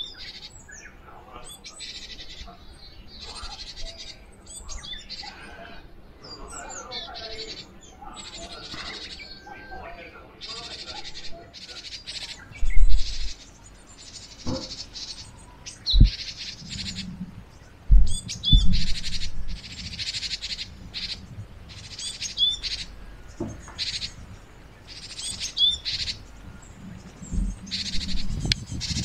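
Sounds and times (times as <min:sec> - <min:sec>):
birds singing: 0:00.0 - 0:29.0
low thumps: 0:14.4 - 0:15.0, 0:15.9 - 0:19.7, 0:26.4 - 0:29.0.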